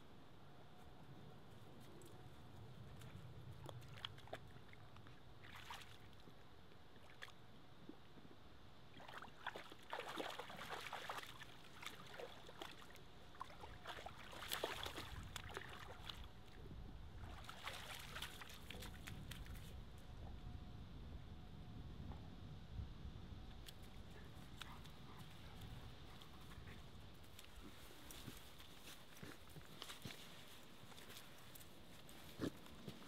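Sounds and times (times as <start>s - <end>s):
dog splashing in water: 9.0s - 16.2s, 17.2s - 19.6s.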